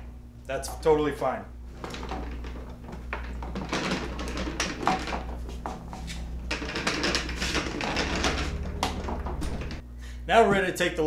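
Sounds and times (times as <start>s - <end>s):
low hum: 0.0s - 10.3s
generator scraping on table: 1.7s - 9.8s.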